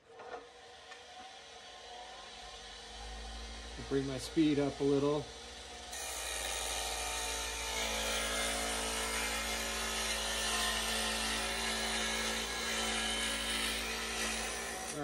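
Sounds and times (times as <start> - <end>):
wood lathe motor hum: 0.5 - 15.0.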